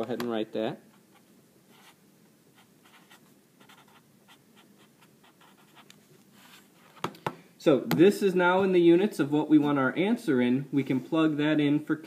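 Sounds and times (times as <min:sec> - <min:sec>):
marker scratching on paper: 0:01.1 - 0:02.0, 0:02.6 - 0:06.6.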